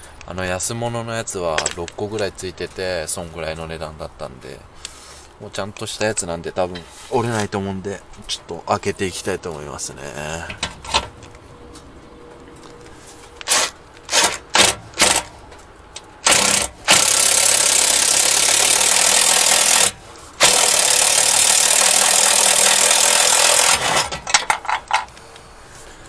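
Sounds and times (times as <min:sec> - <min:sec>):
power tool hole saw cutting steel: 0:13.4 - 0:15.3, 0:16.2 - 0:24.4.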